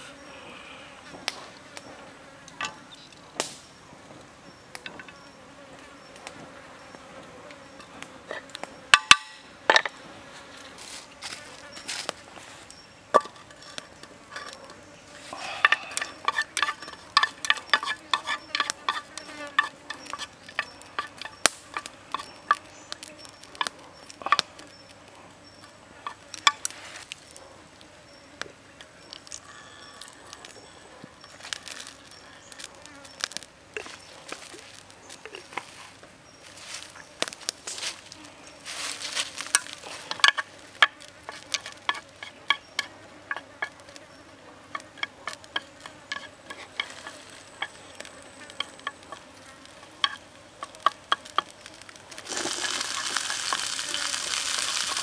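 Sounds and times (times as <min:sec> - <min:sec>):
insects buzzing: 0:00.0 - 0:55.0
wood fire crackling: 0:03.4 - 0:03.7, 0:10.8 - 0:27.8, 0:28.4 - 0:44.1, 0:44.7 - 0:55.0.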